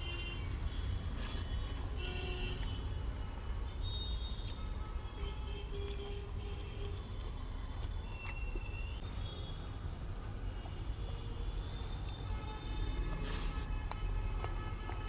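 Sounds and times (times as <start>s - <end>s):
street traffic rumble: 0.0s - 15.0s.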